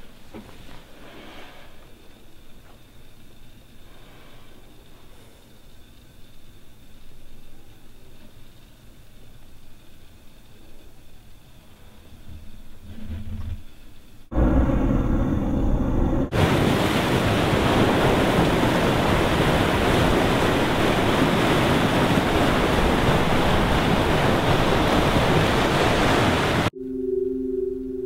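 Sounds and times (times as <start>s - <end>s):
low drone: 14.3s - 16.4s, 26.7s - 28.0s
surf breaking over rocks: 16.2s - 26.7s
soft steady musical tone: 26.7s - 28.0s.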